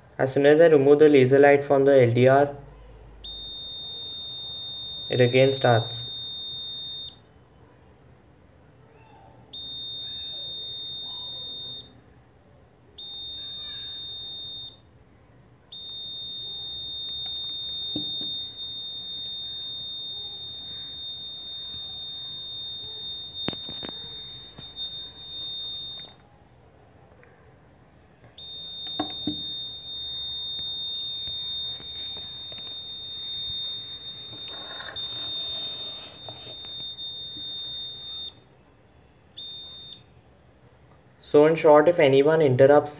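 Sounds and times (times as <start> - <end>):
high-pitched alarm buzzer: 3.3 - 7.2, 9.6 - 12.0, 13.0 - 14.8, 15.8 - 26.2, 28.4 - 38.4, 39.4 - 40.1.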